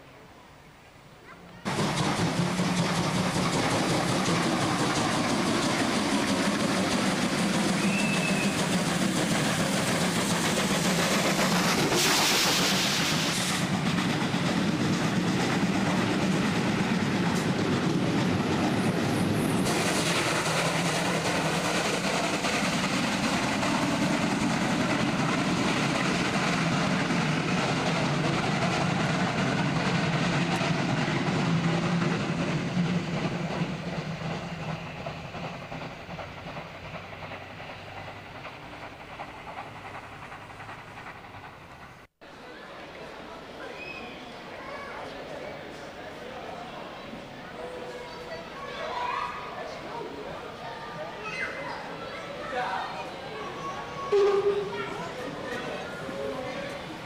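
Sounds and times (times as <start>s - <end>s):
train wheels clattering on rails: 1.7s - 42.1s, 53.0s - 57.0s
steam locomotive hiss: 1.7s - 57.0s.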